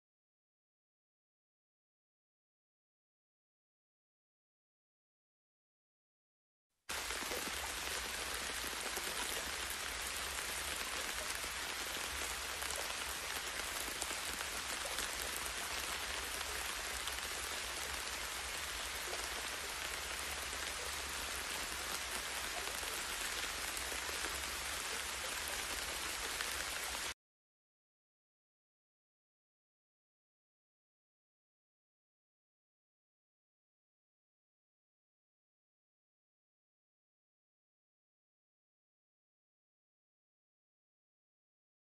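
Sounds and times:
steady outdoor hiss: 6.9 - 27.1.

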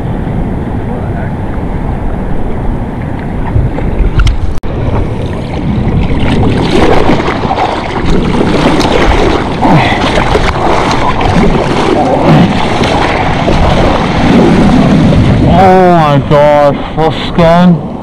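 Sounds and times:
surfer paddling: 0.0 - 18.0
seawater sloshing and splashing: 3.4 - 17.3.

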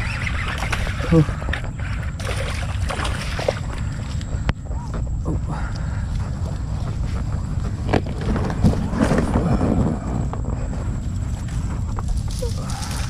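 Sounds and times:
crackling rustling noise: 6.1 - 13.0.

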